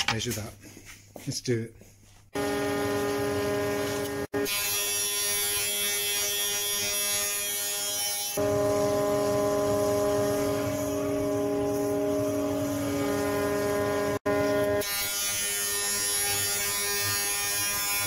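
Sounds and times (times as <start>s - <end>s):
planer motor hum: 2.4s - 4.3s, 8.4s - 14.8s.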